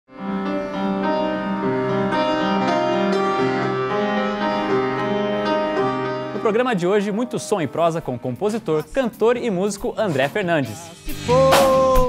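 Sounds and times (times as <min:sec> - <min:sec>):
slow piano chords: 0:00.1 - 0:08.9.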